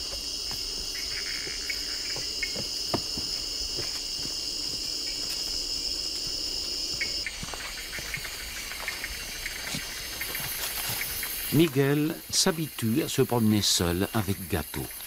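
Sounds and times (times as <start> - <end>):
footsteps on dry leaves: 0.0 - 11.6
insects chirring: 0.0 - 15.0.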